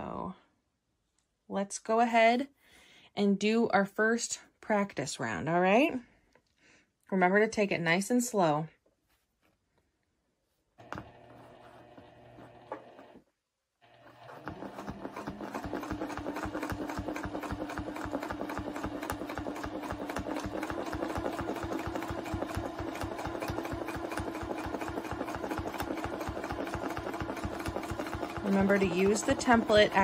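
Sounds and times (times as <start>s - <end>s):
sewing machine stitching: 10.8s - 13.2s, 13.8s - 30.0s.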